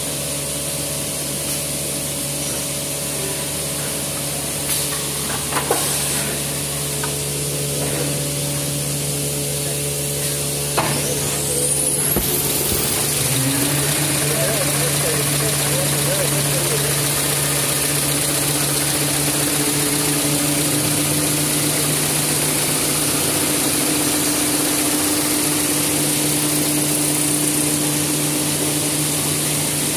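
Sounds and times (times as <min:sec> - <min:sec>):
machine humming with hiss: 0:00.0 - 0:29.9
high rising whine: 0:11.0 - 0:23.6.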